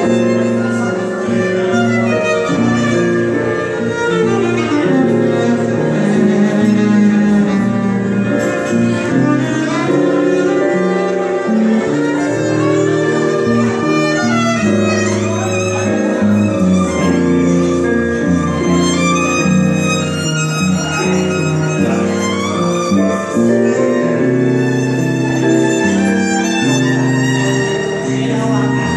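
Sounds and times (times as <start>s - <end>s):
piano: 0.0s - 28.9s
violin playing long notes: 0.0s - 28.9s.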